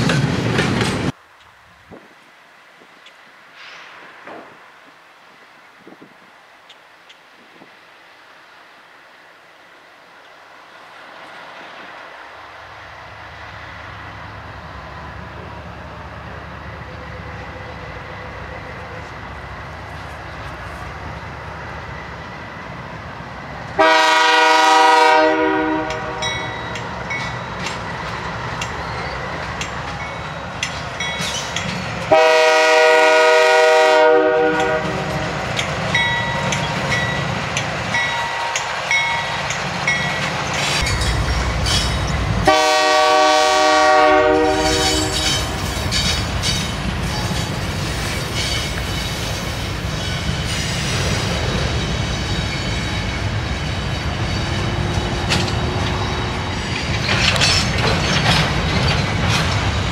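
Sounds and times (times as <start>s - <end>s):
freight train rumbling on rails: 0.0s - 2.2s, 2.8s - 59.9s
locomotive air horn blasts: 23.8s - 26.5s, 32.1s - 35.3s, 42.4s - 45.6s.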